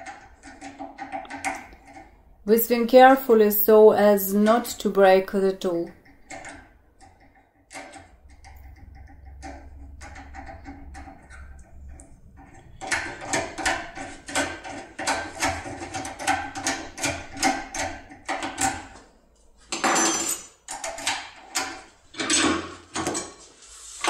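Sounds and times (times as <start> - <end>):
metal parts clattering: 19.7 - 23.4.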